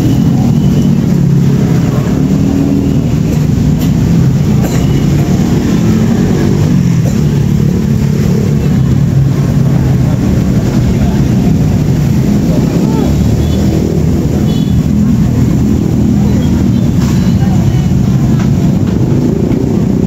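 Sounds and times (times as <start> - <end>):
steady engine hum: 0.0 - 20.0
street noise: 0.0 - 20.0.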